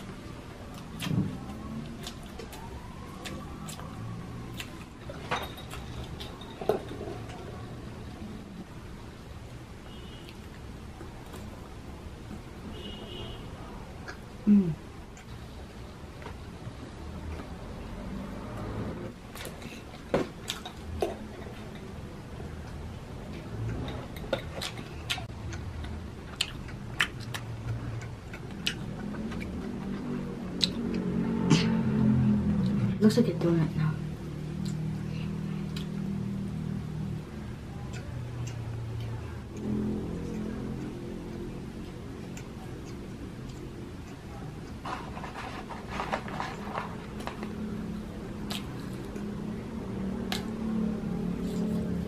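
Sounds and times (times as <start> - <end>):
low background hum: 0.0 - 52.0
chewing crunchy food: 19.3 - 31.2
eating sounds: 19.3 - 32.8, 34.2 - 52.0.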